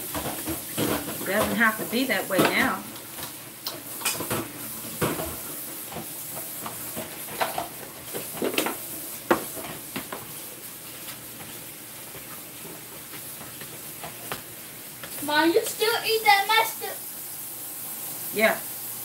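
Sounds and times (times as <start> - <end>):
steady background hiss: 12.8 - 19.0.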